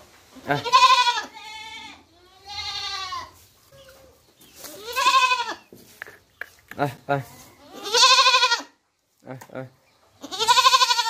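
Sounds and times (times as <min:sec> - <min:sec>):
goats bleating: 0:00.5 - 0:03.4, 0:04.7 - 0:05.7, 0:07.6 - 0:08.8, 0:10.2 - 0:11.0.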